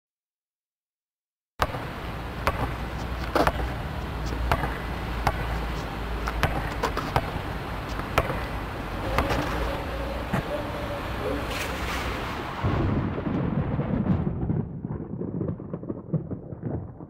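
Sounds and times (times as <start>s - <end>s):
basketball bouncing on asphalt: 1.6s - 10.5s
low steady rumble: 1.7s - 14.6s.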